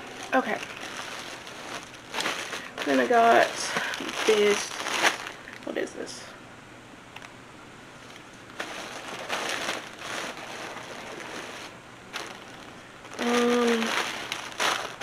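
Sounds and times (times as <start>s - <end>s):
plastic bag crinkling: 0.0s - 5.9s, 8.0s - 15.0s
person humming: 13.2s - 14.0s.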